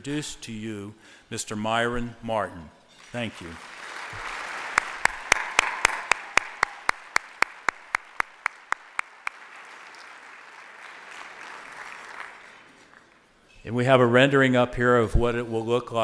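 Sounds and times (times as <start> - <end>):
audience applauding: 3.0 - 13.2
close claps near microphone: 3.0 - 13.3.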